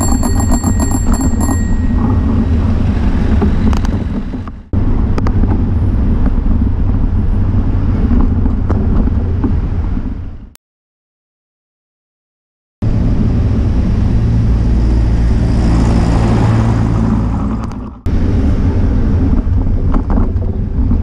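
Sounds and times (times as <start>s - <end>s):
bicycle bell ringing: 0.0s - 2.7s
wind buffeting microphone: 0.0s - 10.5s, 12.8s - 21.0s
city traffic rumble: 0.0s - 10.6s, 12.8s - 21.0s.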